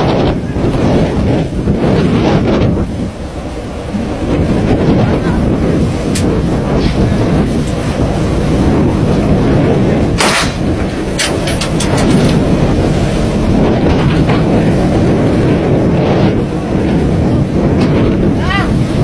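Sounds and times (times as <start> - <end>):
boat engine rumble: 0.0 - 19.0
rushing water: 0.0 - 19.0
wind on microphone: 0.0 - 19.0
sharp bang: 10.2 - 10.7.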